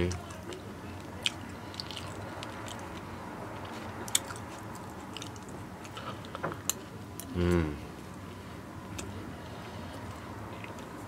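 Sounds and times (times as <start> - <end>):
person chewing food: 0.0 - 8.2, 8.8 - 11.0.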